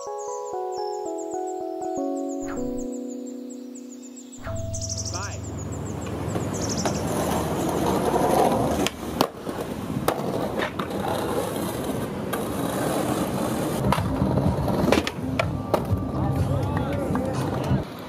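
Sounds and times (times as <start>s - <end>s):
skateboard wheels rolling on pavement: 5.7s - 18.0s
skateboard clacks: 6.0s - 18.0s.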